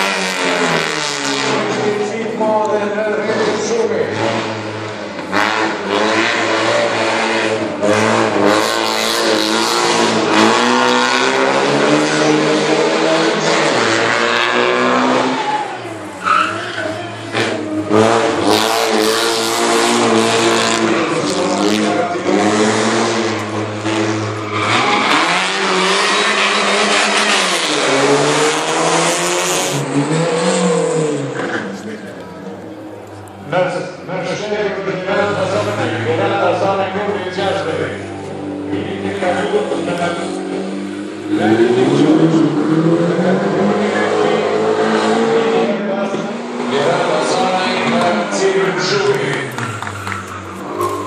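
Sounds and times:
race car engine revving: 0:00.0 - 0:51.0
tyre squeal: 0:15.4 - 0:17.6, 0:49.6 - 0:51.0.

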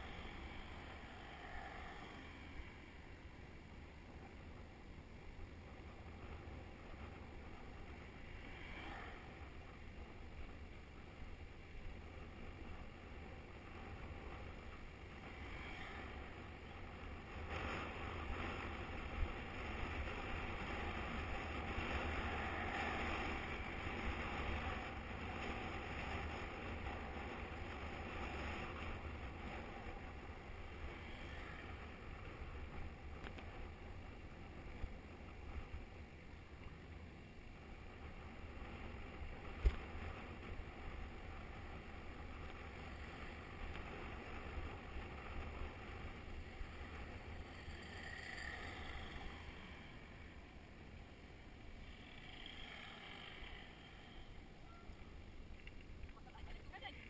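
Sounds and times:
wind noise on microphone: 0:05.4 - 0:48.4.

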